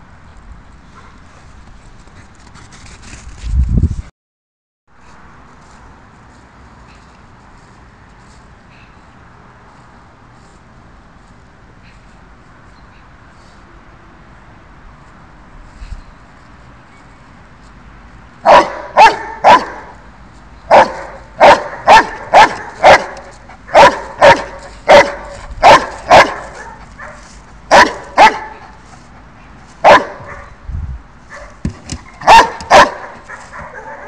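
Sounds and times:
dog barking: 18.4 - 20.0, 20.7 - 28.7, 29.8 - 30.6, 31.3 - 34.0.

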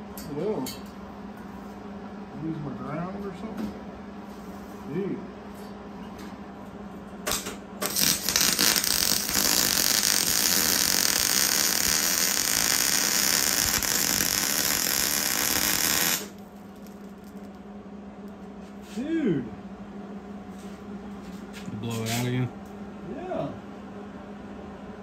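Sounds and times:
welding arc sputtering and burning: 7.3 - 17.6.

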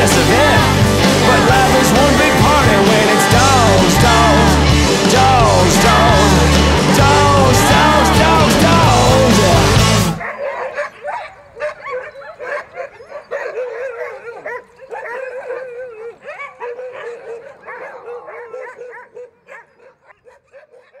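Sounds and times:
sled dogs yipping and whining: 10.2 - 21.0.

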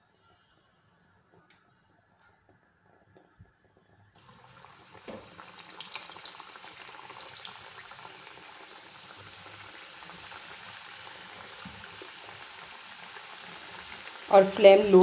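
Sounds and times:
pastry sizzling in hot oil: 4.2 - 15.0.

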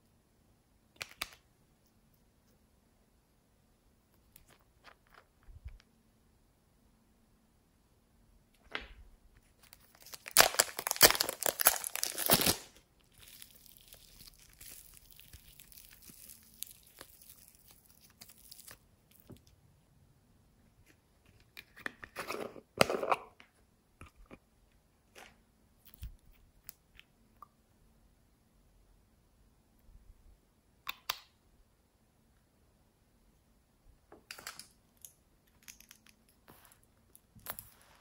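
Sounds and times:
plastic wrapper crinkling: 9.5 - 19.4.

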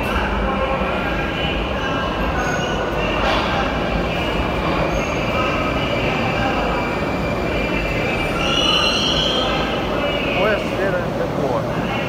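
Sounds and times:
wheel squeal: 8.2 - 9.7.

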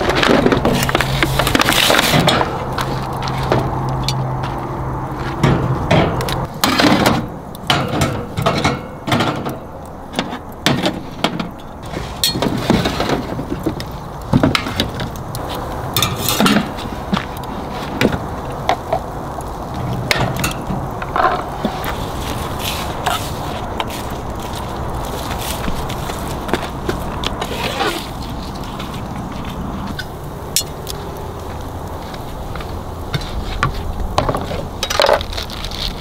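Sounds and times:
shells clacking on metal grill: 16.0 - 16.7, 20.1 - 20.7.

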